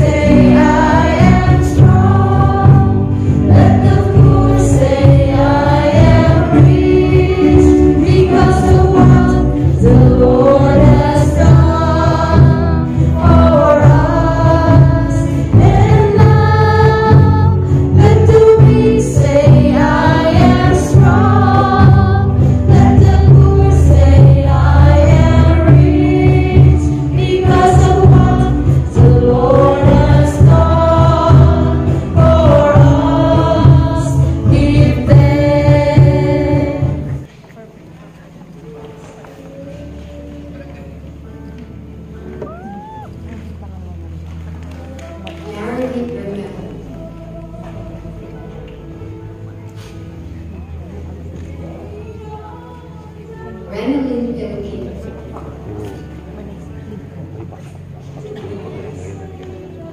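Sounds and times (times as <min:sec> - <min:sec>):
choir singing a hymn: 0:00.0 - 0:37.3, 0:45.0 - 0:49.2
instrumental accompaniment: 0:00.0 - 0:37.4.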